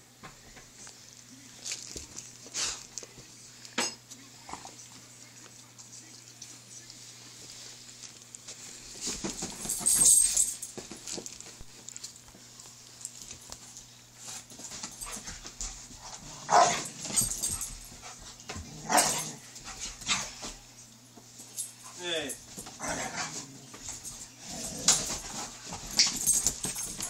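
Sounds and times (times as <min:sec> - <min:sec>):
dogs scuffling: 0:04.4 - 0:27.0
dogs barking: 0:16.4 - 0:17.5, 0:18.8 - 0:19.4.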